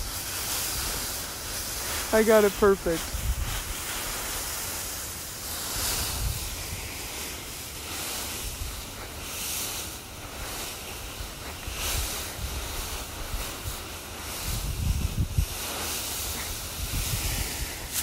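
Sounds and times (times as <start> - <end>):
dry leaves rustling and crackling: 0.0 - 18.0
wind rumbling on microphone: 0.0 - 18.0.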